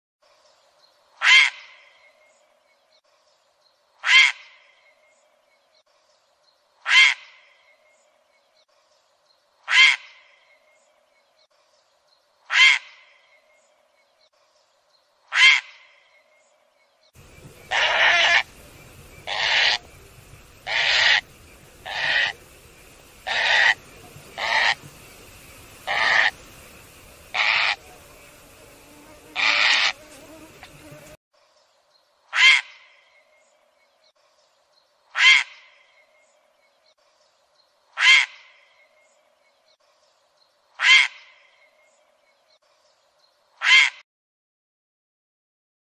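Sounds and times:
steady background hiss: 16.1s - 32.3s
cranes calling: 17.2s - 28.6s, 29.3s - 30.8s.

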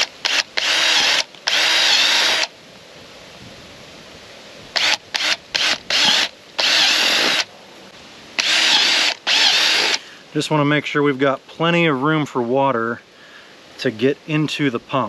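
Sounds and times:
cordless drill boring plastic pipe: 0.0s - 2.5s, 4.8s - 7.5s, 8.4s - 10.0s.

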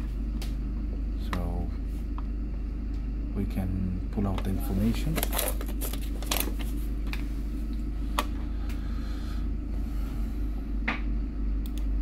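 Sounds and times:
steady low hum: 0.0s - 12.0s.

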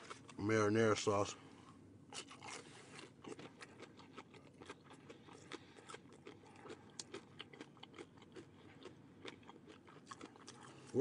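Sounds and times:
chewing crunchy food: 0.0s - 0.4s, 1.6s - 11.0s.

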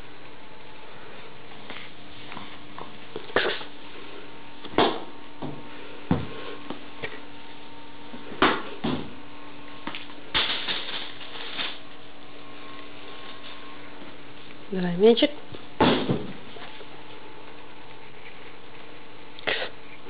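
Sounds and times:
faint steady hum: 0.0s - 20.0s
ball bouncing on linoleum floor: 4.6s - 7.1s.

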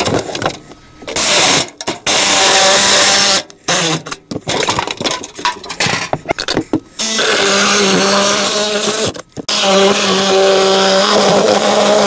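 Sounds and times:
wood debris knocking and rattling: 4.2s - 6.9s
cordless power tool cutting: 7.0s - 12.0s.

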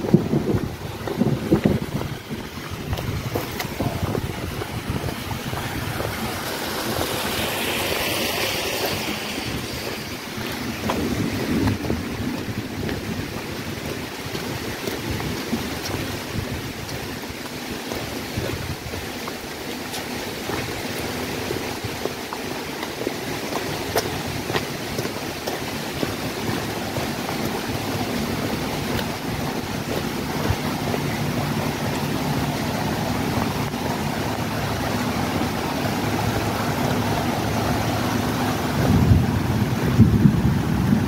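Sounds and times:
steady rushing outdoor noise: 0.0s - 41.0s
wind buffeting microphone: 0.0s - 41.0s.

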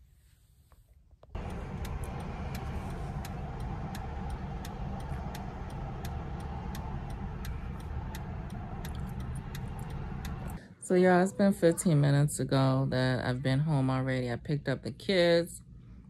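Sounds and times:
car engine idling: 1.4s - 10.6s
indicator relay ticking: 1.4s - 10.6s.

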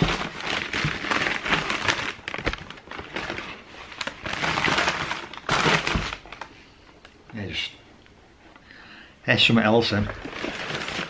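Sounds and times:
paper packaging rustling: 0.0s - 6.6s, 10.0s - 11.0s.

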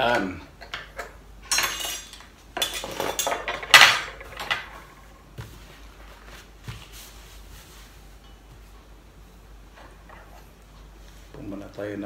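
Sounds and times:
cutlery clattering against dishes: 0.2s - 4.7s.

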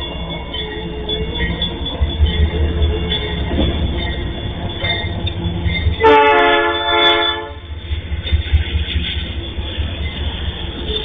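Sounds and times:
locomotive engine rumble: 0.0s - 11.0s
train horn: 6.0s - 7.7s.

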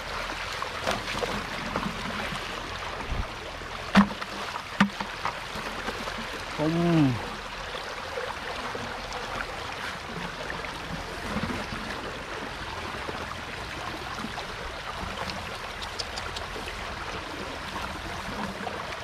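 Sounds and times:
floodwater rushing: 0.0s - 19.0s
faint ticks: 15.2s - 16.6s.

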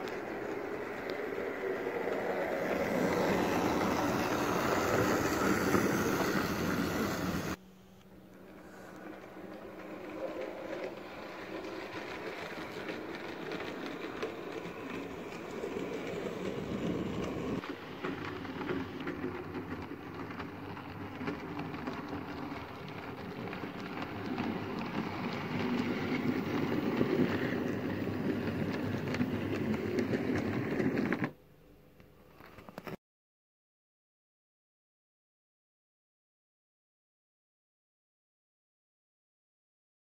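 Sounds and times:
model train motor whirring: 0.0s - 7.6s, 8.4s - 31.3s
wheels clicking over rail joints: 0.0s - 7.6s, 8.4s - 31.4s.

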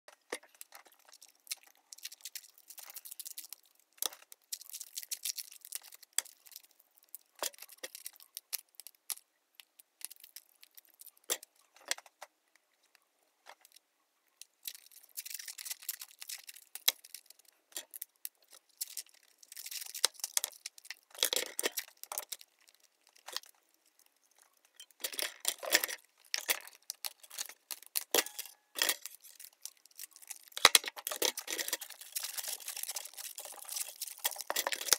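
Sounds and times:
clicks and knocks of stick handling: 24.4s - 34.9s.

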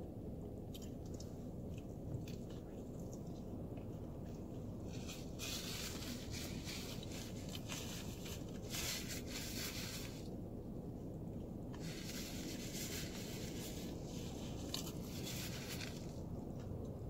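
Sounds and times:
low background rumble: 0.0s - 17.0s
paper napkin rustling: 4.9s - 10.3s, 11.8s - 16.2s.

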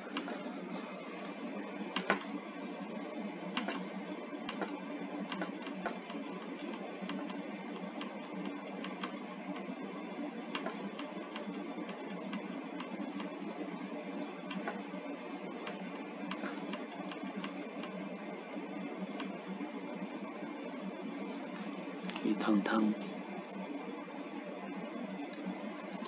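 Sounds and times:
computer mouse clicks: 1.9s - 2.3s, 3.5s - 7.4s, 8.0s - 9.2s, 10.5s - 13.4s, 14.5s - 14.8s, 15.6s - 18.0s, 19.2s - 19.4s.

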